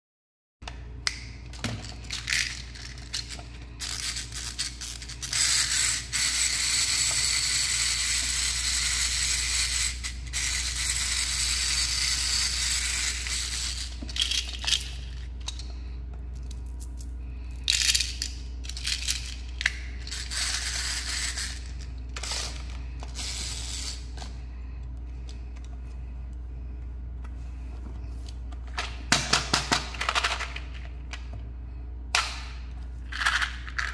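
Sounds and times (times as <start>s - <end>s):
steady low hum: 0.6s - 33.9s
plastic toys clicking and rattling: 1.5s - 11.1s, 12.0s - 15.7s, 17.6s - 24.0s, 29.6s - 30.9s, 33.1s - 33.9s.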